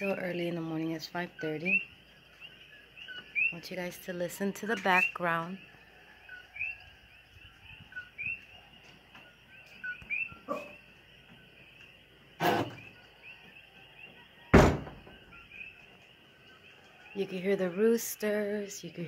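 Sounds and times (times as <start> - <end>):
frogs chirping: 0.0 - 19.0
loud thumps: 14.5 - 15.2.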